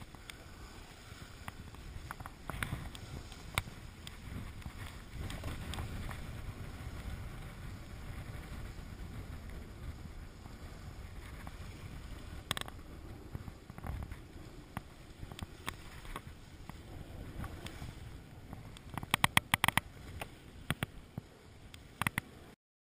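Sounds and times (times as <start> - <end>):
water rushing along hull: 0.0 - 22.6
wind rumbling on microphone: 0.0 - 22.6
sharp clicks: 18.7 - 20.9.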